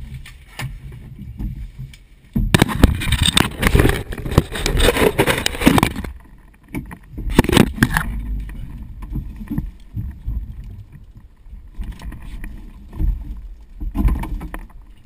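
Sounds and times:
knocks and clatters: 0.6 - 10.4
suit fabric rustling on microphone: 2.7 - 6.1.

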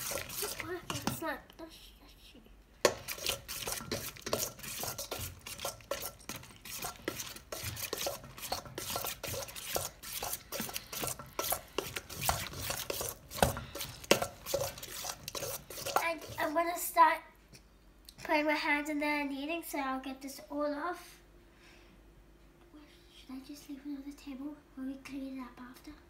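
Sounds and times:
utensil scraping metal bowl: 0.0 - 1.2, 2.8 - 16.6.

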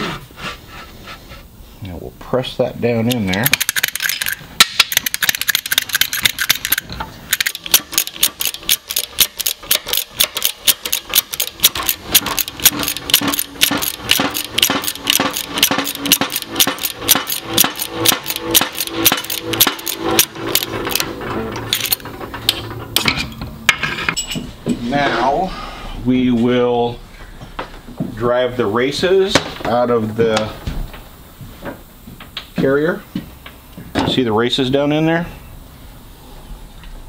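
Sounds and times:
shop press pump clicking: 3.1 - 23.1.

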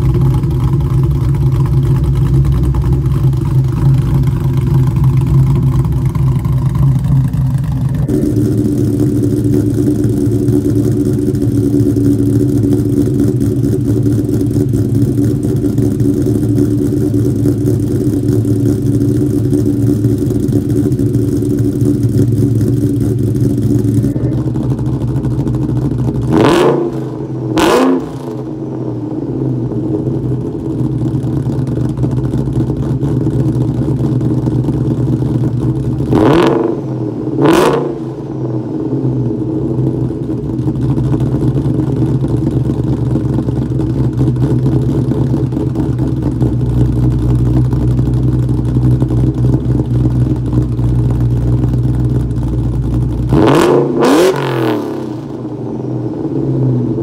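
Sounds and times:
car engine idling and revving: 0.0 - 57.0.

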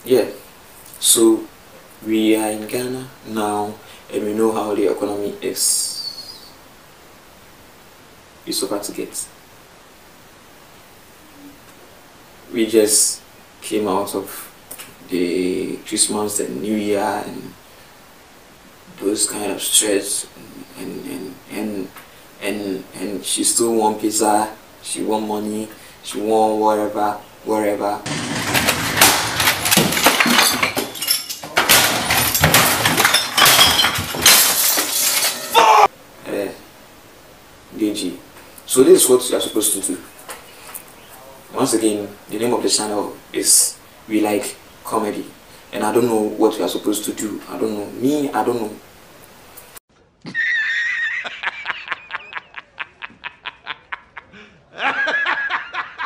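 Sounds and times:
glass clinking and breaking: 28.1 - 35.9
loud crashes of objects smashing: 28.1 - 35.9
man laughing hard: 50.2 - 56.0.

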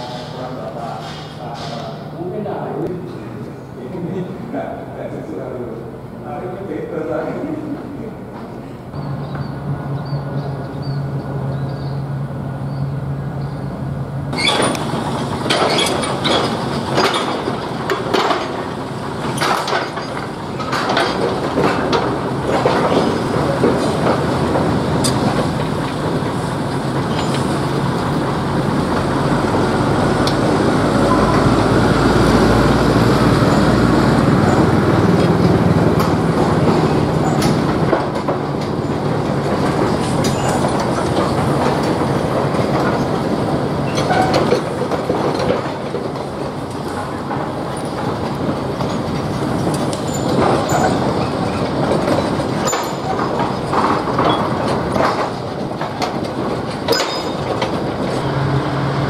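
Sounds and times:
diesel locomotive engine hum: 0.0 - 59.0
wagons clanking and rattling: 14.3 - 59.0.

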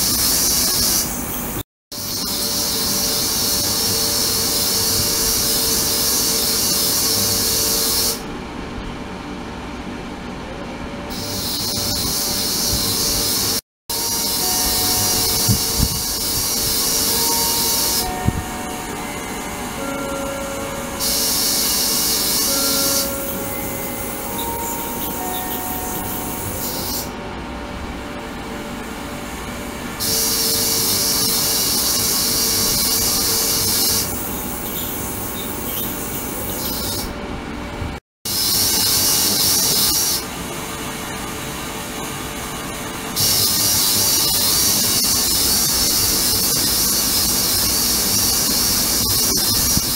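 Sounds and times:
ultrasonic tank hiss: 11.2 - 19.8, 21.0 - 27.1, 30.0 - 35.2, 43.2 - 49.9.

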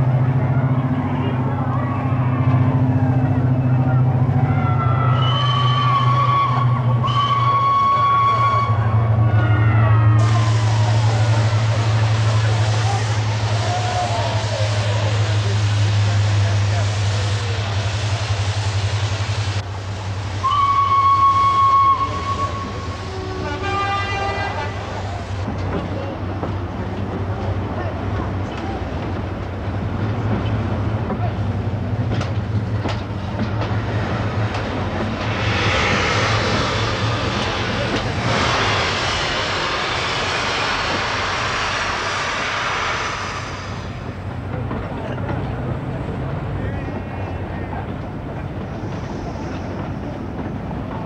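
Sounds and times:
lower fuller steam whistle: 4.7 - 19.1, 20.4 - 25.2, 35.2 - 44.0
high steam whistle: 5.1 - 9.1, 20.4 - 25.0, 35.2 - 44.0
steam hissing: 10.1 - 44.8, 48.2 - 50.9.

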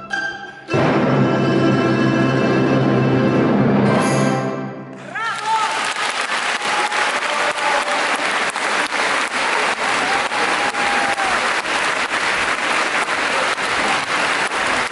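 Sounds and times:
audience applauding: 5.0 - 14.9
drawn-out call from audience: 5.2 - 14.9.

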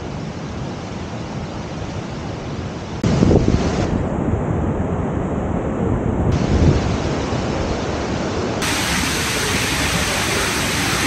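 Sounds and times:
wind buffeting microphone: 3.0 - 11.0
waterfall rushing: 8.6 - 11.0.

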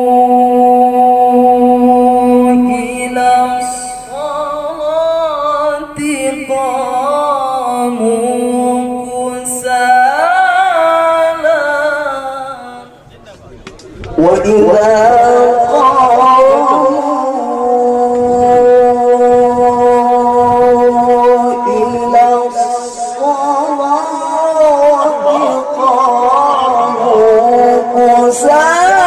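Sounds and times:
young man chanting into microphone: 0.0 - 13.0, 14.1 - 29.0.

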